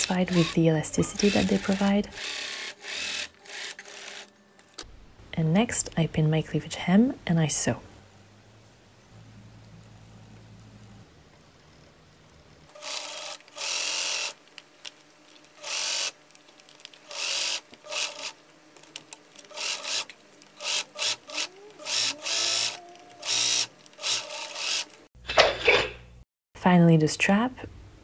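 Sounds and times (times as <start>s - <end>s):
sewing machine stitching: 0.0s - 4.2s, 19.5s - 24.9s.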